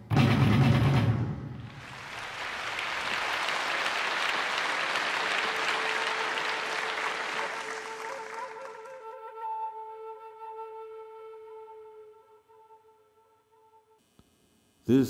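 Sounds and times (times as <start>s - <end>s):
audience applauding: 1.6s - 9.5s
flute long held note: 5.2s - 14.0s.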